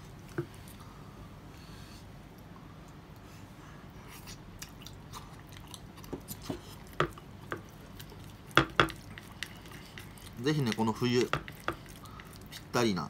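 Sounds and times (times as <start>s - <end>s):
chewing: 4.0s - 12.8s
chopsticks tapping on ceramic dish: 8.6s - 9.1s, 10.6s - 11.8s.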